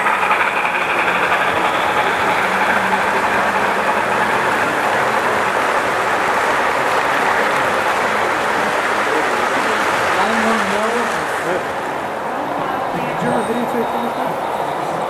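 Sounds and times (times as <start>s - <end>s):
model train motors: 0.0s - 12.0s
model train wheels on rails: 0.0s - 15.0s.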